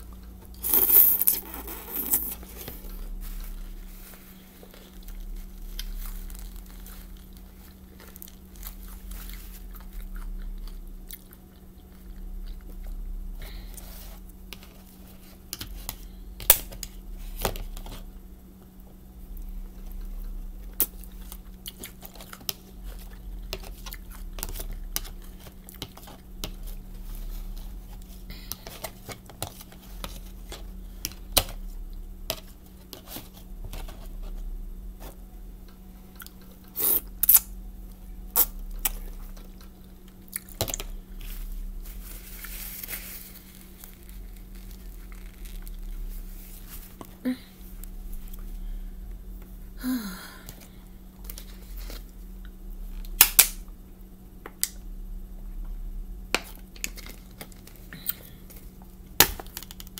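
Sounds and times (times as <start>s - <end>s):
chewing and mouth noises: 4.7s - 13.1s.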